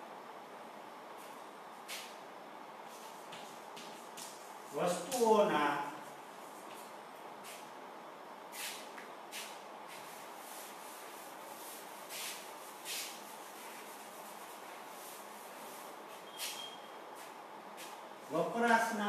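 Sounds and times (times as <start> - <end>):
duster rubbing on blackboard: 8.6 - 16.6.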